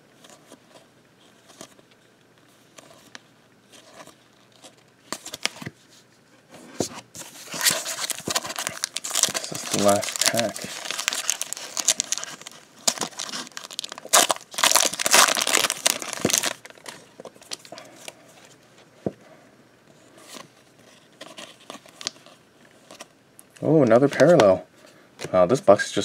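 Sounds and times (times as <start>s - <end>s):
cards rustling and clicking: 6.8s - 18.5s
foil wrapper crinkling and tearing: 7.5s - 17.8s.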